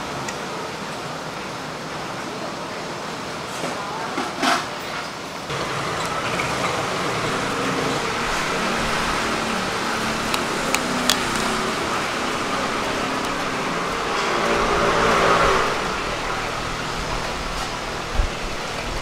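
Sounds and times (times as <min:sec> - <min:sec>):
traffic: 0:00.0 - 0:19.0
low machine hum: 0:05.5 - 0:19.0.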